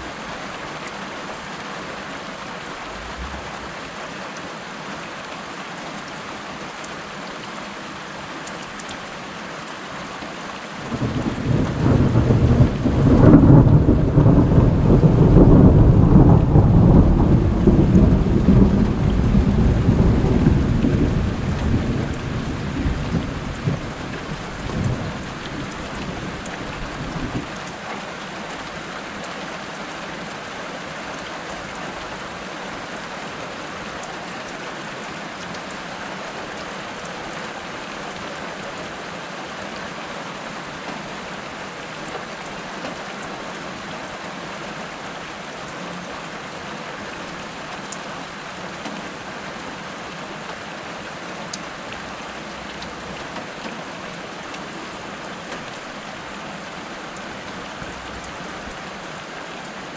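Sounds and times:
steady rain falling: 0:00.0 - 0:59.9
thunder rumbling: 0:02.7 - 0:04.0, 0:10.9 - 0:25.8.

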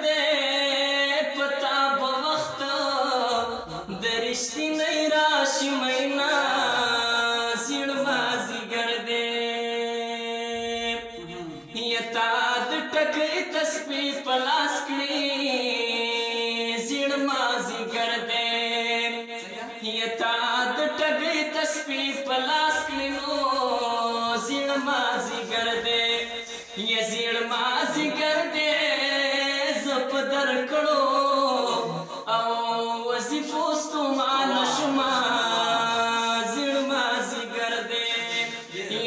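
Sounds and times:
man singing long notes: 0:19.6 - 0:39.0.

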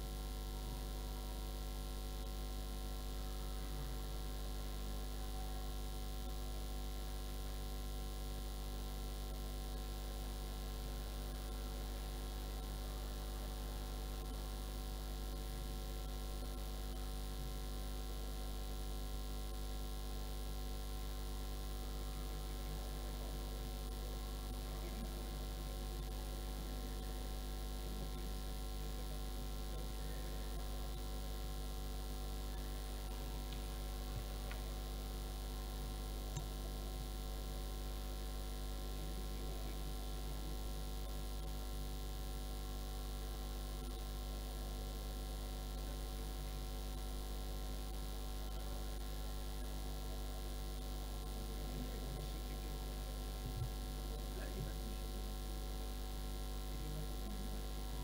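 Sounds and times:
electrical mains hum: 0:00.0 - 0:58.0
faint steady tones: 0:22.2 - 0:42.0.

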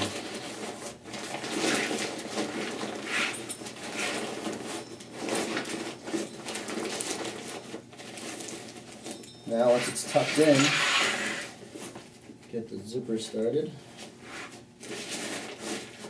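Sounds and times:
backpack fabric rustling: 0:00.0 - 0:12.0.

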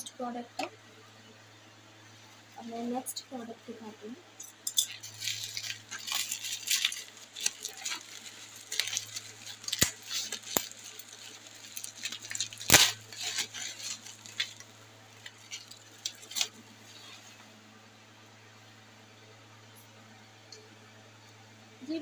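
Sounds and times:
bubble wrap crinkling: 0:04.8 - 0:17.6.

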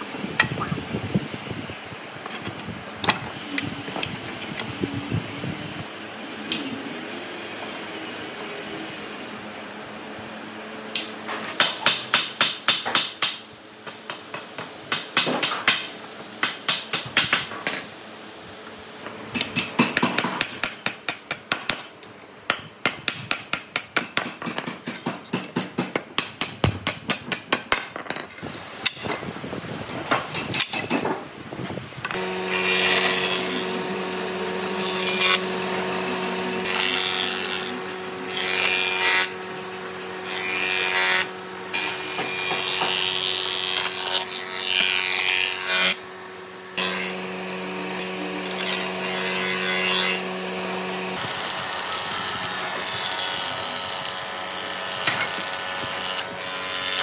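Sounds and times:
hammering on wood: 0:22.5 - 0:27.9.

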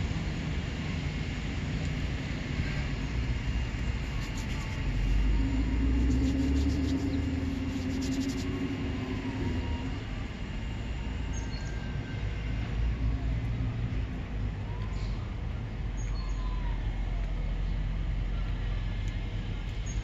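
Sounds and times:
passing vehicle rumble: 0:00.0 - 0:14.7.

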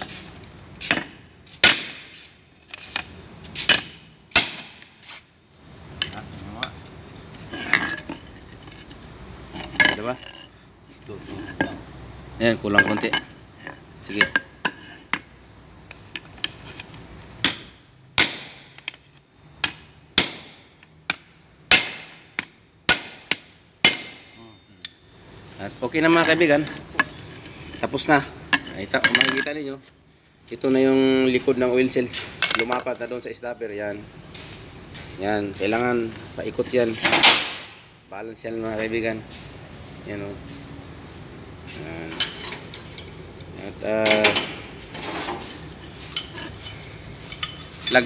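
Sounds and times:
hammer striking metal: 0:00.9 - 0:02.3, 0:03.7 - 0:05.0, 0:17.4 - 0:18.9, 0:19.6 - 0:24.7.

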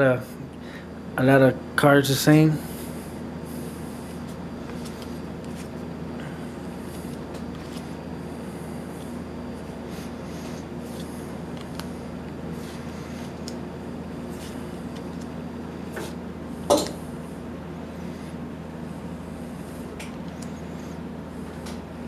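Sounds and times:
steady low hum: 0:00.0 - 0:22.0
trading cards sliding: 0:06.9 - 0:08.0.

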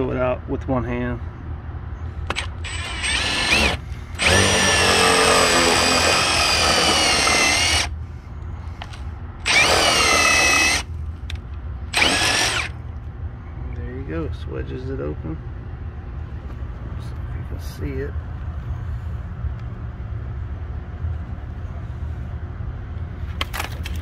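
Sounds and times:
cordless power driver spinning: 0:02.3 - 0:07.9, 0:08.8 - 0:10.9, 0:11.9 - 0:12.7.

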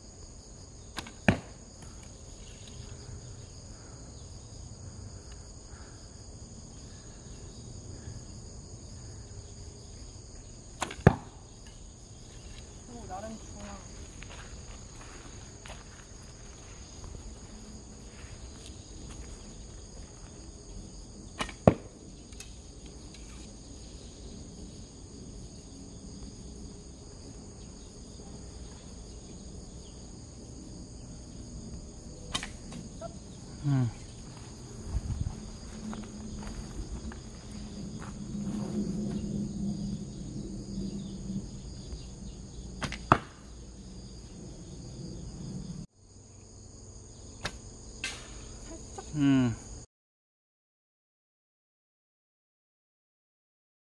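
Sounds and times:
low hum: 0:21.9 - 0:45.9
high insect trilling: 0:22.6 - 0:42.9, 0:48.4 - 0:49.8
bowstring release snaps: 0:32.3 - 0:32.6, 0:47.4 - 0:48.3.

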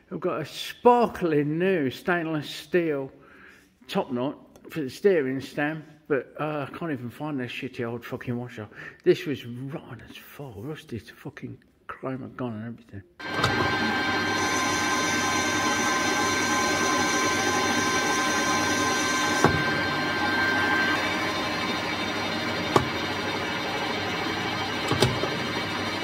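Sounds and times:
metal lathe whirring and whining: 0:13.2 - 0:26.0.

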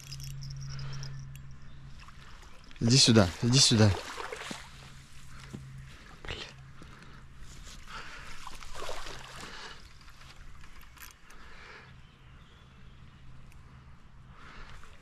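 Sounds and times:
water splashing: 0:02.0 - 0:05.0, 0:08.2 - 0:10.2.

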